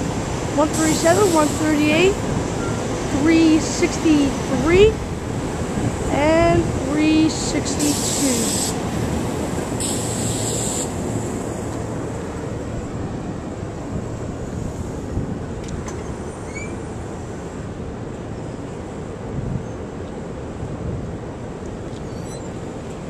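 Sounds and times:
electric train rumbling: 0:00.0 - 0:23.0
wind noise on microphone: 0:00.0 - 0:23.0
brief hiss: 0:09.8 - 0:11.0.

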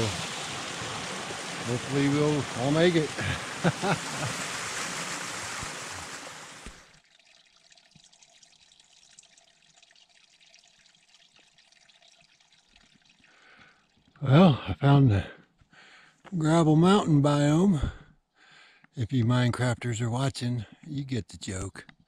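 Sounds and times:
waterfall rushing: 0:00.0 - 0:06.9
stream trickling over rocks: 0:00.0 - 0:14.2.

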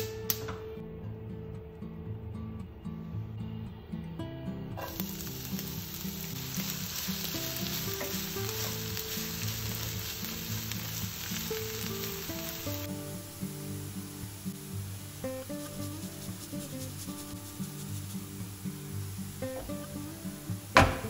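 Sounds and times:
background music: 0:00.0 - 0:21.0
food sizzling in frying pan: 0:04.8 - 0:21.0.

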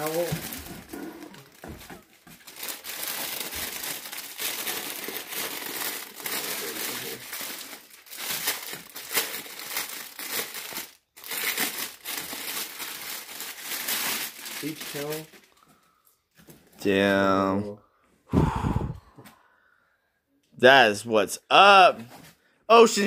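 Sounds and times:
plastic bag crinkling: 0:00.0 - 0:15.6.

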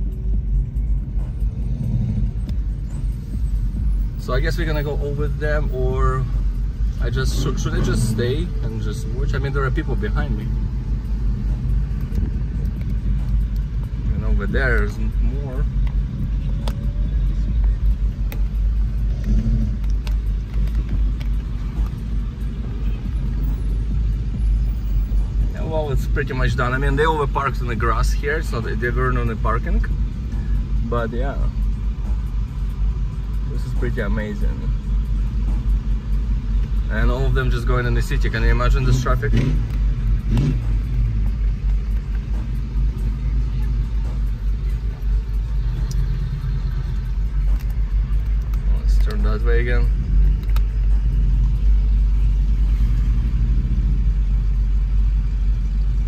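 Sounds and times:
car engine rumble: 0:00.0 - 0:56.0
road noise: 0:00.0 - 0:56.0.

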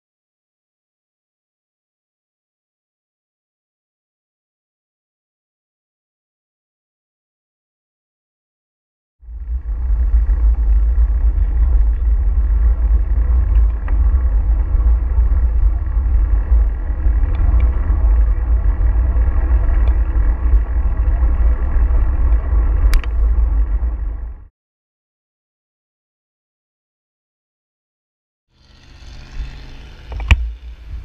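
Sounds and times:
wind buffeting microphone: 0:09.3 - 0:24.5
faint street traffic: 0:28.5 - 0:31.0.

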